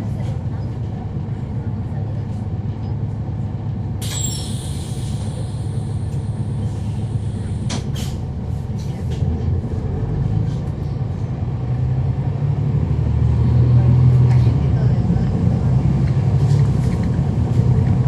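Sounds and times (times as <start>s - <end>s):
bus diesel engine rumbling: 0.0s - 18.0s
air hissing: 4.0s - 8.2s.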